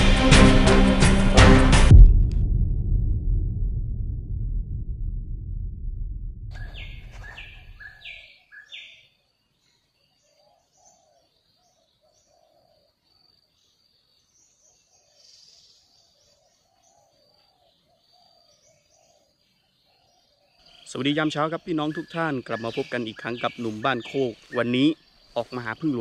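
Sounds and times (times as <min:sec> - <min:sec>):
low sound: 0:00.0 - 0:07.8
bird whistled falling notes: 0:06.5 - 0:08.2
high bird chirps: 0:06.5 - 0:09.2, 0:20.6 - 0:26.0.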